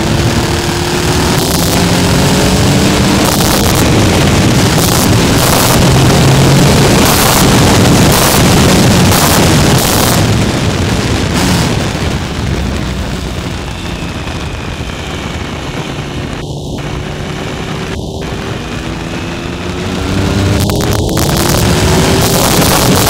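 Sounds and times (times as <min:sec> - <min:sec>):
motorcycle engine: 0:00.0 - 0:23.0
wind rushing over microphone: 0:00.0 - 0:23.0.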